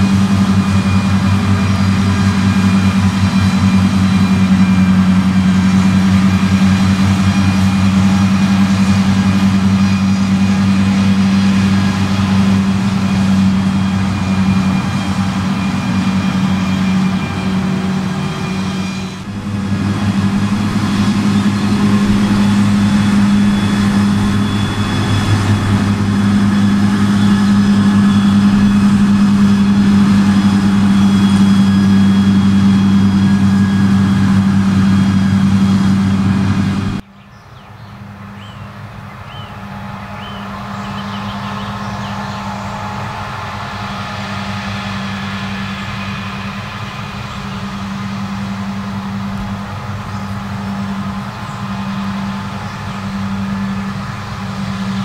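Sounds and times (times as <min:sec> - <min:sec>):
mower engine hum: 0:00.0 - 0:37.0, 0:37.7 - 0:55.0.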